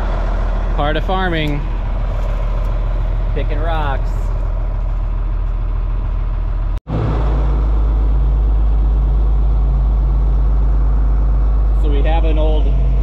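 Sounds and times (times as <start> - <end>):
tractor engine running: 0.0 - 13.0.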